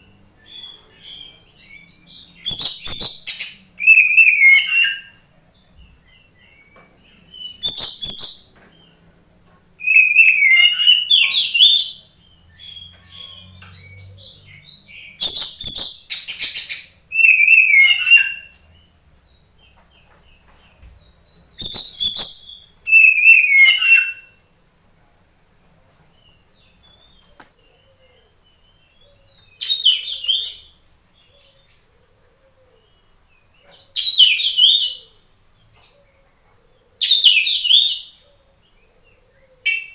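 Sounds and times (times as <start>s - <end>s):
bird singing whistled phrases: 2.5s - 5.1s, 9.8s - 11.9s, 15.2s - 19.1s, 21.6s - 24.4s.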